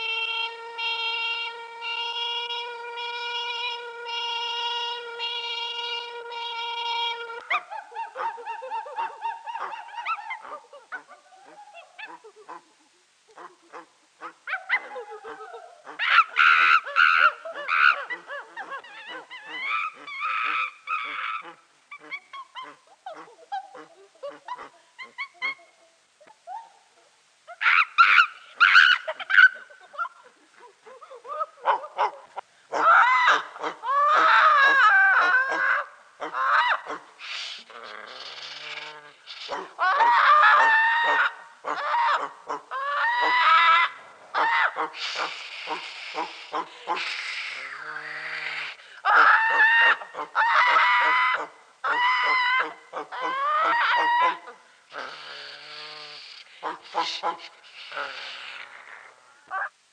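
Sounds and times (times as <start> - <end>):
voices making vocal cries: 0.0 - 59.8.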